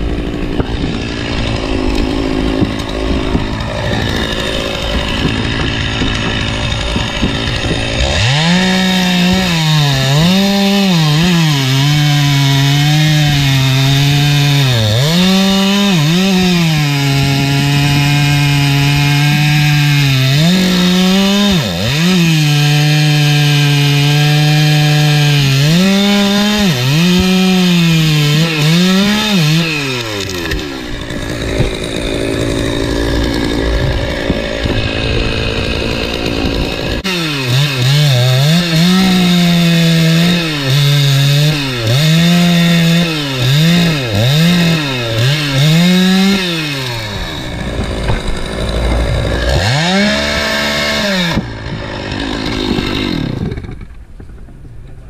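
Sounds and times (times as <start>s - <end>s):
chainsaw cutting wood: 0.0s - 54.6s
rough unpitched noise: 25.1s - 55.0s.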